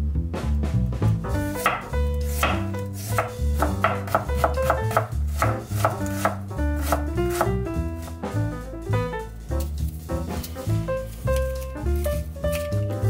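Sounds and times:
jazz background music: 0.0s - 13.0s
knife chopping on wooden board: 1.6s - 7.6s.

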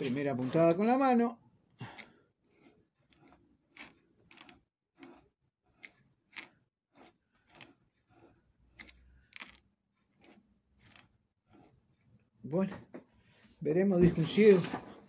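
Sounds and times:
sewing machine mechanical clicks: 2.0s - 12.3s.

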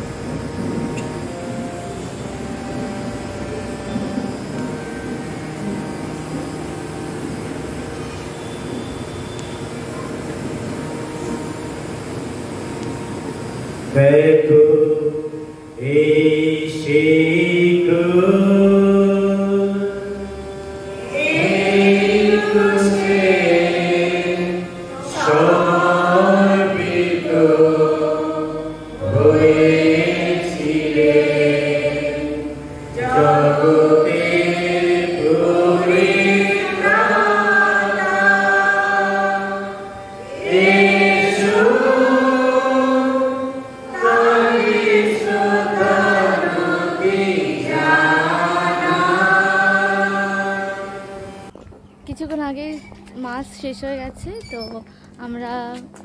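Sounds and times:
man singing a chant: 14.0s - 20.2s.

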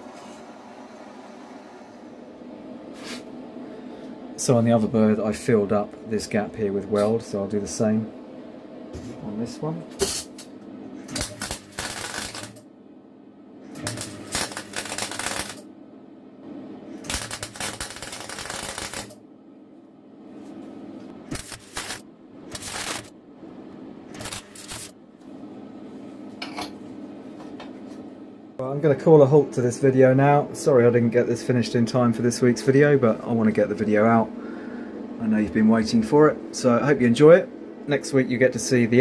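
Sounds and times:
steady low hum: 0.0s - 39.0s
welder crackling: 11.1s - 12.6s, 13.7s - 15.7s, 17.0s - 19.2s, 21.3s - 23.1s, 24.1s - 25.0s.

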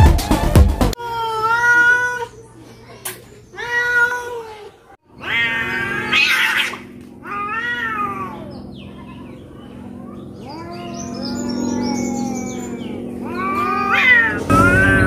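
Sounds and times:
cats yowling: 1.0s - 2.6s, 3.5s - 15.0s.

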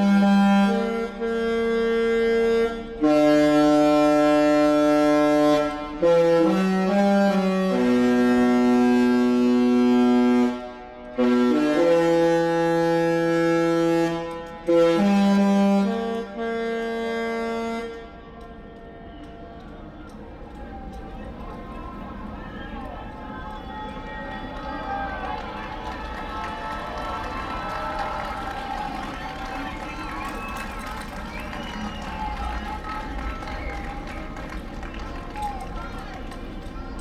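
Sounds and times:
ship horn playing chords: 0.0s - 19.1s.

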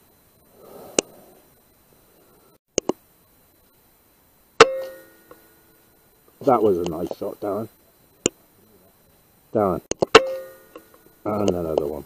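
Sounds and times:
rifle shot with metallic ring: 4.6s - 5.4s, 10.1s - 10.9s.

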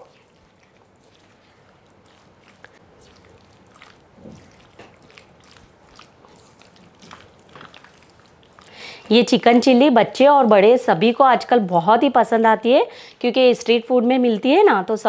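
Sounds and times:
spatula squishing wet coating: 0.0s - 9.8s, 14.0s - 15.0s.

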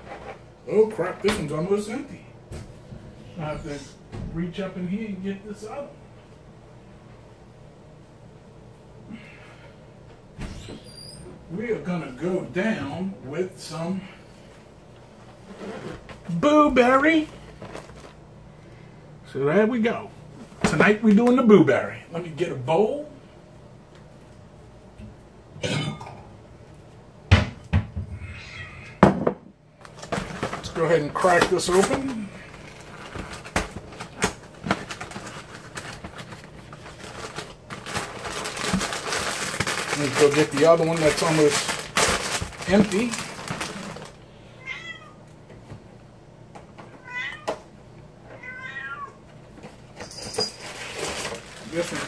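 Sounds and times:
cat meowing: 28.2s - 29.0s, 44.6s - 45.2s, 46.9s - 47.6s, 48.3s - 49.2s.

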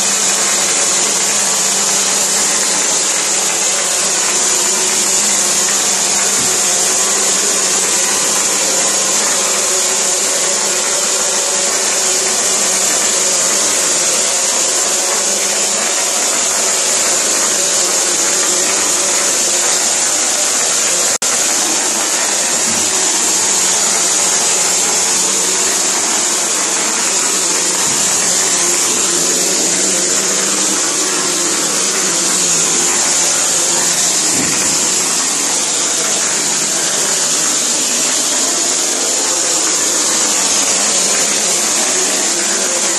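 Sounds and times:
spray gun compressed air hiss: 0.0s - 42.9s.

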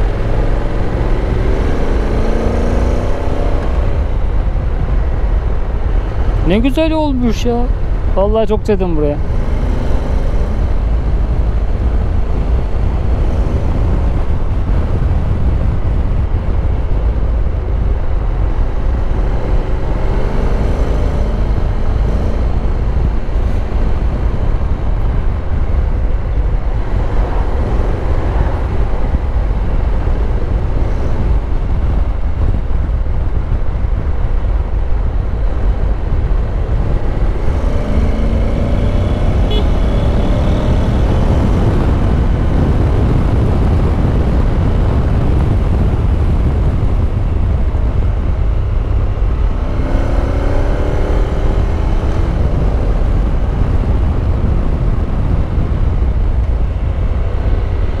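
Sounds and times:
wind rumble on microphone: 0.0s - 58.0s
motorcycle engine running: 28.9s - 58.0s.

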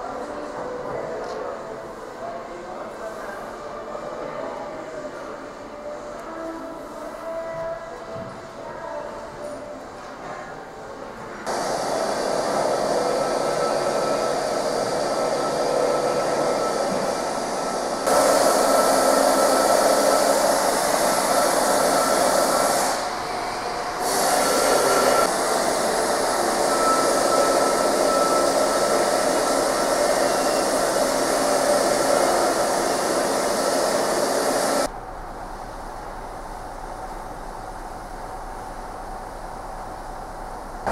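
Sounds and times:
machine running with high whine: 11.5s - 39.4s.

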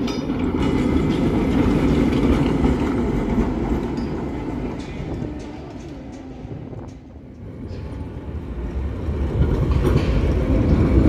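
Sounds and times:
tram rolling past: 0.0s - 11.0s.

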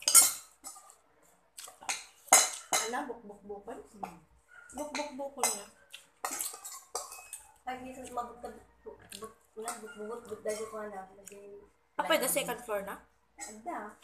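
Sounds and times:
metal spoon clinking against bowl: 0.0s - 1.0s, 1.8s - 3.0s, 4.8s - 7.6s, 9.6s - 10.8s.

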